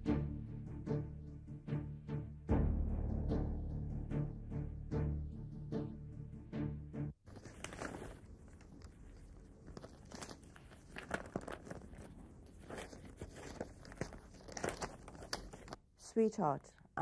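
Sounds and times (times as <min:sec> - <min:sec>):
paper rustling and crinkling: 0:07.2 - 0:15.8.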